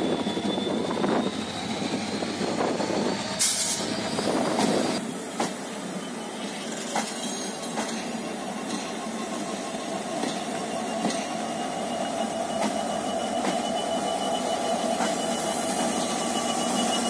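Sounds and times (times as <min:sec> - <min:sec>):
diesel locomotive engine running: 0:00.0 - 0:17.0
wheels clunking over rail joints: 0:06.5 - 0:11.6.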